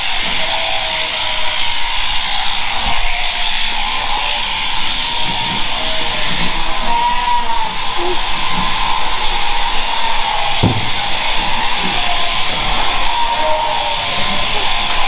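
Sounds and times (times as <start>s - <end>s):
electric shears buzzing: 0.0s - 15.0s.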